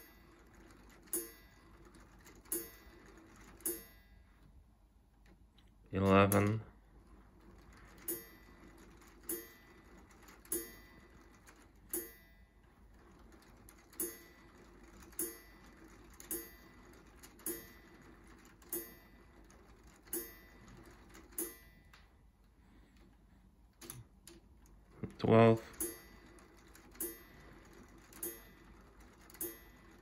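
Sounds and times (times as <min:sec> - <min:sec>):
clock mechanism striking: 0:00.0 - 0:04.7, 0:06.0 - 0:22.2, 0:23.8 - 0:30.0.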